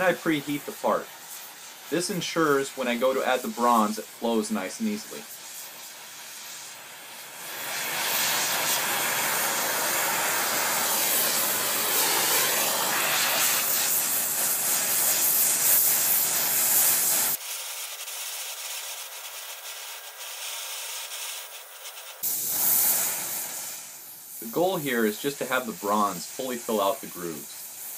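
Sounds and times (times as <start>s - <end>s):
torch flame hissing: 0.0s - 27.9s.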